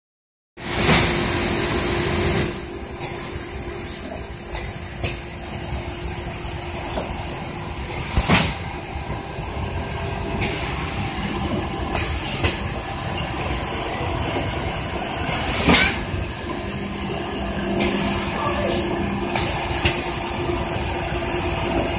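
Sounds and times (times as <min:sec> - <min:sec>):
machine running: 0:00.6 - 0:21.9
sharp machine clunks: 0:15.3 - 0:16.1.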